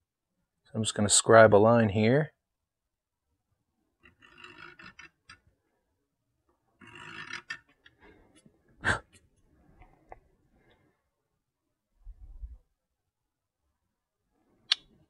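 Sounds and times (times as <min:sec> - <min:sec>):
awl scratching painted steel: 0:04.0 - 0:05.6, 0:06.7 - 0:08.5.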